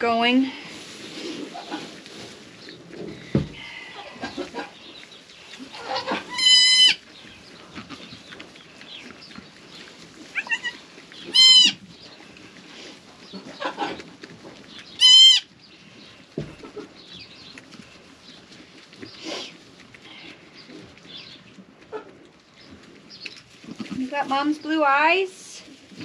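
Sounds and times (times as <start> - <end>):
straw rustling: 0.0 - 26.0
dull thump: 3.3 - 3.7
goat kid bleating: 5.7 - 7.0, 7.8 - 8.1, 10.3 - 11.8, 15.0 - 15.5.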